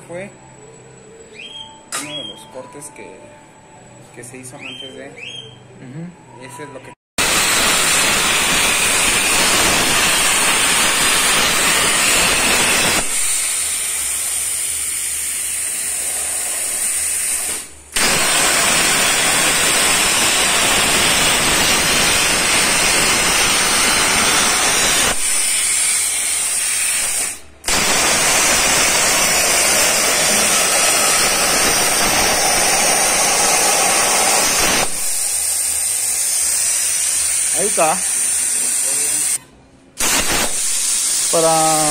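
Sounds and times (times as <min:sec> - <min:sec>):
plasma cutter hissing: 0:07.2 - 0:39.4, 0:40.0 - 0:41.9.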